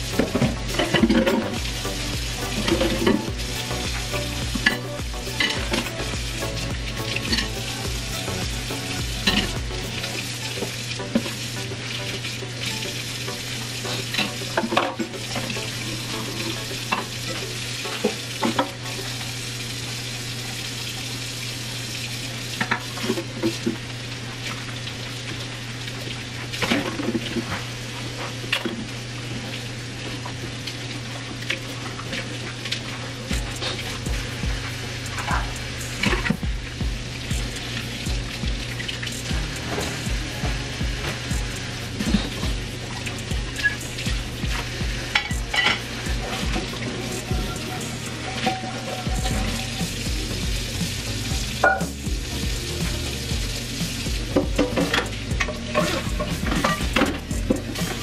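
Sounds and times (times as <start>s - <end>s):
faucet running into sink: 0.0s - 58.0s
dishes scrubbed by hand: 37.4s - 52.0s, 53.7s - 58.0s.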